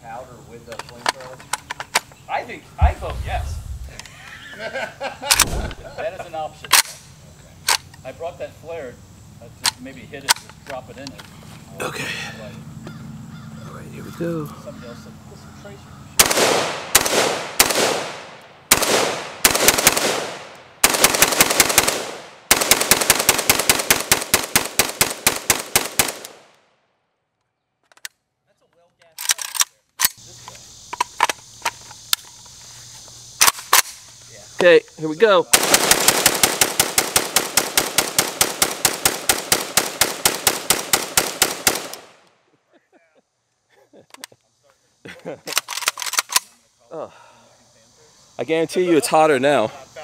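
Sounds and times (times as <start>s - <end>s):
rifle shots echoing: 2.8s - 4.1s, 5.3s - 6.0s, 16.2s - 26.5s, 35.6s - 42.2s.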